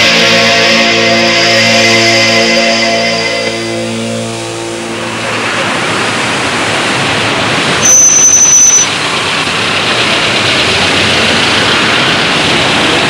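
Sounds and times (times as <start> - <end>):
passing cars: 0.0 - 7.8
loud high-pitched squeal: 0.0 - 9.3.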